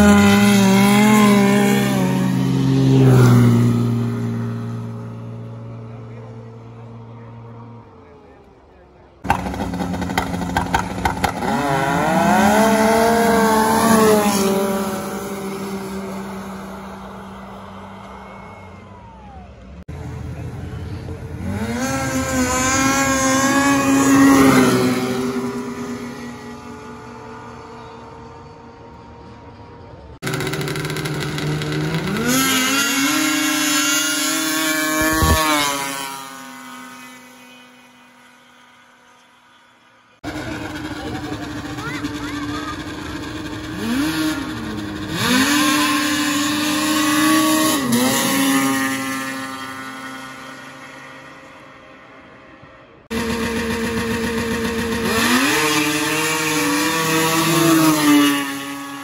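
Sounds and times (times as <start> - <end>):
snowmobile engine at full throttle: 0.0 - 7.8, 9.2 - 19.4, 20.0 - 28.5, 30.2 - 59.0.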